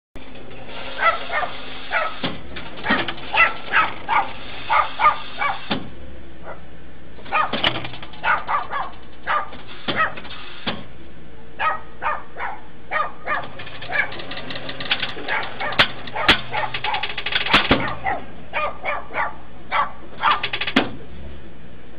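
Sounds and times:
dog barking: 1.0 - 2.2, 3.3 - 5.7, 6.4 - 6.7, 7.3 - 7.6, 8.2 - 10.2, 11.6 - 14.2, 15.2 - 20.4.

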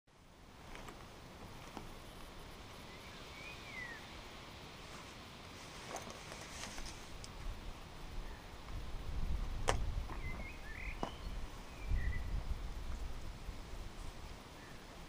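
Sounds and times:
bird chirps: 2.8 - 4.1, 10.1 - 12.4
wind buffeting microphone: 7.4 - 14.5.

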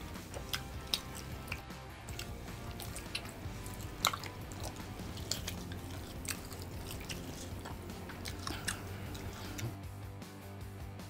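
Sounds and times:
person chewing wetly: 0.0 - 9.8
mouth smacks and clicks: 0.1 - 9.8.

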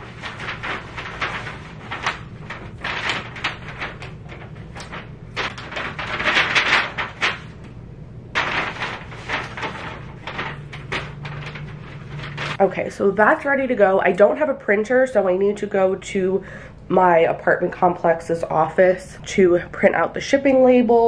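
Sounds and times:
plastic and paper crinkling: 0.0 - 7.8, 8.4 - 12.6
steady low hum: 0.0 - 20.9.

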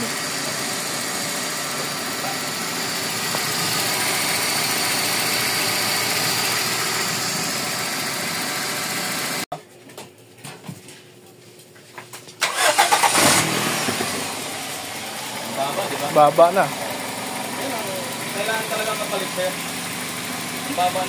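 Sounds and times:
car engine idling: 0.0 - 9.4, 12.4 - 21.0.

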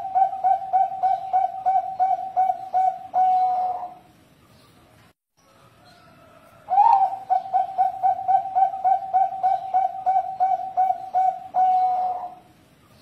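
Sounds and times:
dove cooing: 0.0 - 4.1, 6.3 - 12.6.

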